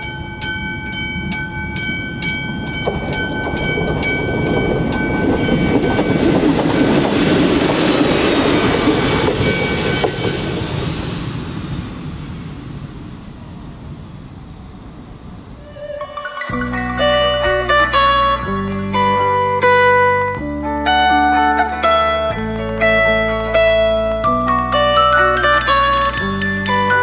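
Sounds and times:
level crossing bell ringing: 0.0s - 7.1s, 15.7s - 19.7s, 23.4s - 27.0s
train rumble and wheel noise: 0.0s - 27.0s.

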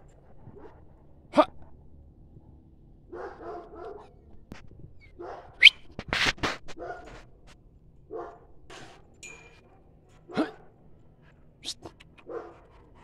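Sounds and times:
dog barking and whining: 3.1s - 4.2s, 5.0s - 5.9s, 10.3s - 10.7s, 11.6s - 13.0s.

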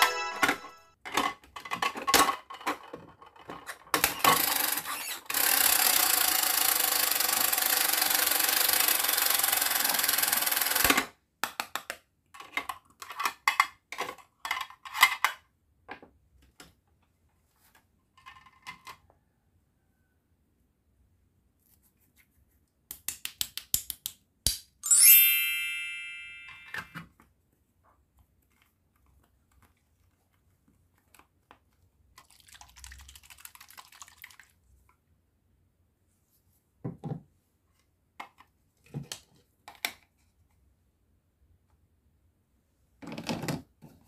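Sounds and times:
bright toy chime: 0.0s - 1.0s, 24.8s - 27.0s.

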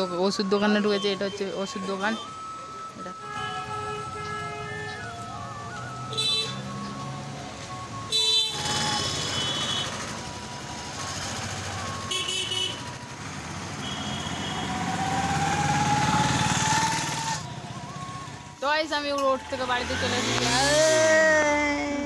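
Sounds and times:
traffic hum: 0.0s - 22.0s
vehicle horn honking: 3.1s - 5.1s, 6.1s - 6.8s, 8.1s - 10.1s, 12.0s - 12.9s, 13.8s - 14.8s
vehicle engine approaching: 3.7s - 22.0s.

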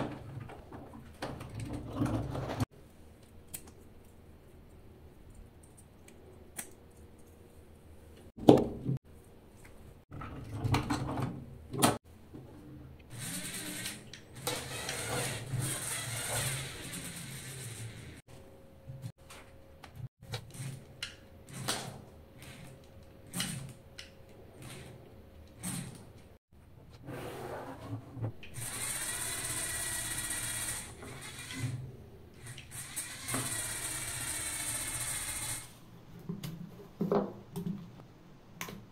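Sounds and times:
electric toy motors whirring: 13.1s - 18.2s, 28.6s - 35.8s.

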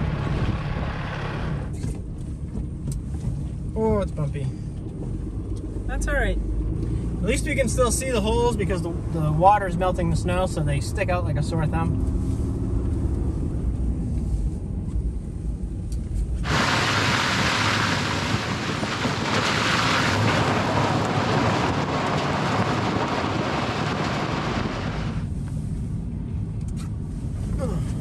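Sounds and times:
engine and road rumble: 0.0s - 28.0s
wind buffeting microphone: 16.4s - 25.3s
tyres through slush and puddles: 16.4s - 25.7s.

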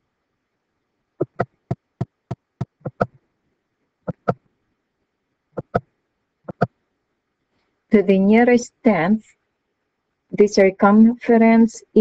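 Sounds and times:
computer mouse clicking: 1.2s - 3.1s, 4.1s - 4.4s, 5.6s - 5.8s, 6.5s - 6.7s.

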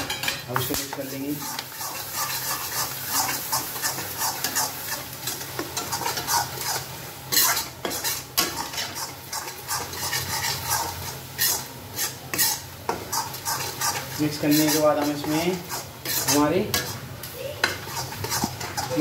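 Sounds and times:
mixture sizzling: 0.0s - 19.0s
metal spatula scraping iron pan: 5.8s - 17.0s, 17.6s - 19.0s.

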